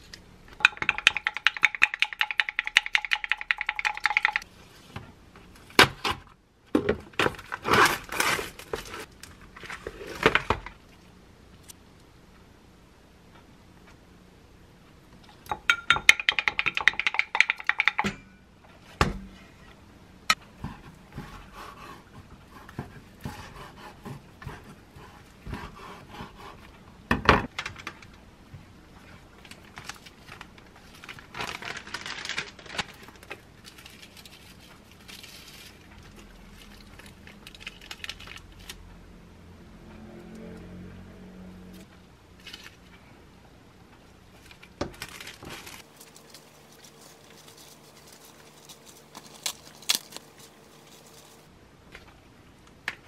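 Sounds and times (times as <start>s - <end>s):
plastic wrapping rustling: 7.2s - 10.8s, 29.0s - 38.8s, 44.3s - 51.5s.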